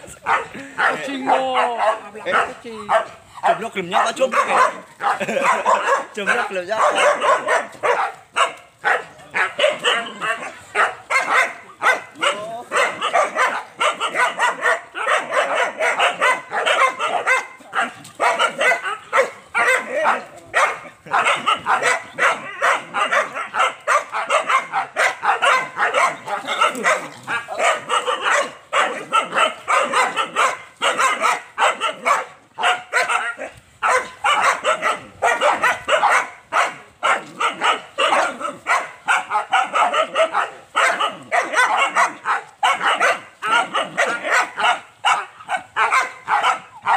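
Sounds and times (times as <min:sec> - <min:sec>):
young dogs barking: 0:00.0 - 0:46.9
dogs yipping and whining: 0:03.4 - 0:46.9.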